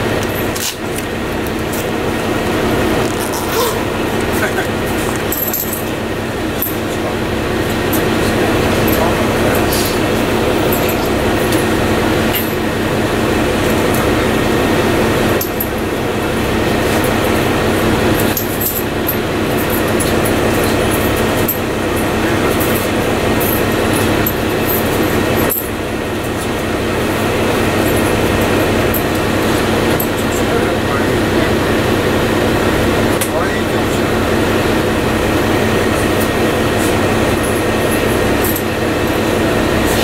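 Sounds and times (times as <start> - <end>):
bus engine drone: 0.0 - 40.0
road noise: 0.0 - 40.0
interior clinks and rattles: 2.8 - 12.8, 15.2 - 30.9, 35.6 - 40.0.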